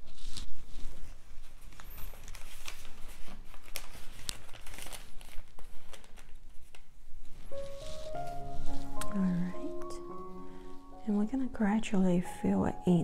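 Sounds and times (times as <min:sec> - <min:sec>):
crinkling and rustling: 0:00.0 - 0:10.2.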